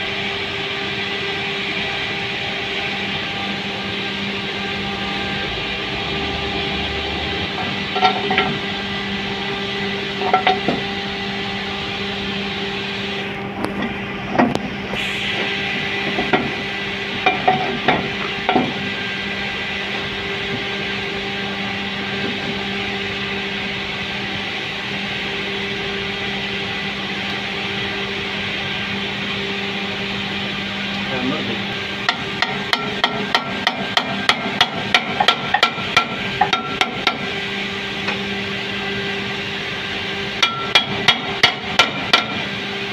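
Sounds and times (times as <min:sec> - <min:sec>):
machinery hum: 0:00.0 - 0:42.9
hand tools knocking on metal: 0:32.1 - 0:37.2, 0:40.4 - 0:42.4.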